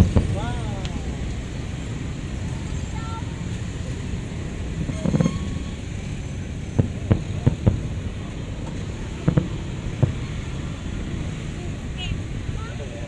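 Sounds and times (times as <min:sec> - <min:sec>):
distant fireworks bangs: 0:00.0 - 0:00.4, 0:04.7 - 0:05.9, 0:06.6 - 0:11.4
steady low rumble: 0:00.0 - 0:13.0.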